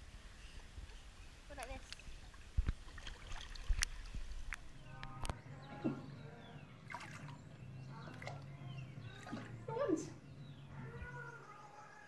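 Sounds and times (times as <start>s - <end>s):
water lapping and splashing: 1.5s - 4.8s, 6.8s - 9.7s.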